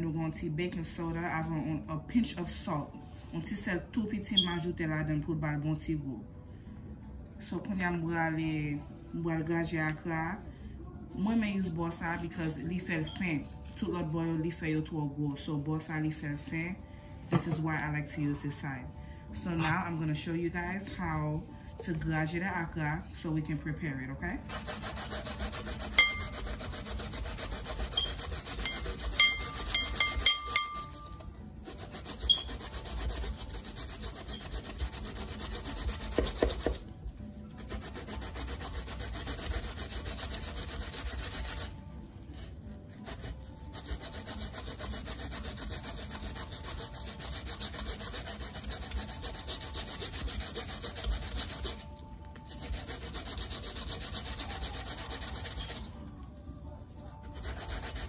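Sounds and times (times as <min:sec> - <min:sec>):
root grating on metal grater: 0:24.5 - 0:36.8, 0:37.5 - 0:41.8, 0:43.0 - 0:51.9, 0:52.5 - 0:55.9, 0:57.2 - 0:58.0
grater knocking against glass bowl: 0:28.0 - 0:31.2.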